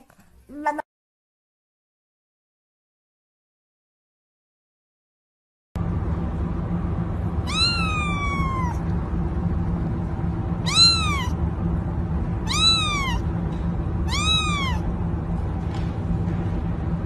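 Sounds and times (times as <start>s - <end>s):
steady low hum: 5.8s - 17.0s
kitten meowing: 7.4s - 8.8s, 10.6s - 11.4s, 12.4s - 13.2s, 14.0s - 14.9s.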